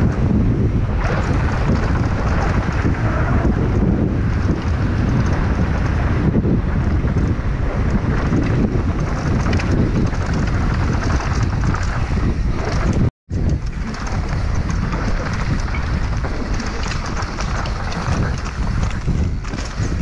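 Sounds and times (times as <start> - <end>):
bike clattering over rough ground: 0.0 - 20.0
bike tyres on dirt trail: 0.0 - 20.0
wind buffeting microphone: 0.0 - 20.0.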